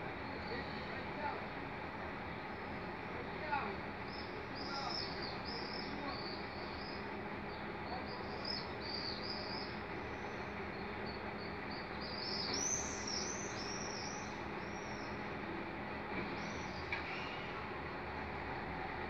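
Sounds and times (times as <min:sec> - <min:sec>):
small birds chirping: 0:04.1 - 0:15.2.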